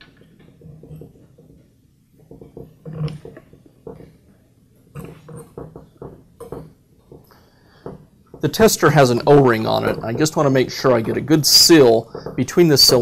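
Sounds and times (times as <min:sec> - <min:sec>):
hands scraping and rubbing on tool: 0:08.4 - 0:13.0.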